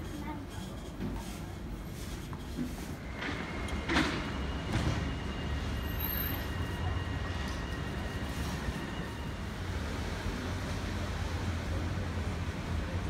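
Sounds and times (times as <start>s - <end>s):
low traffic rumble: 3.1s - 13.0s.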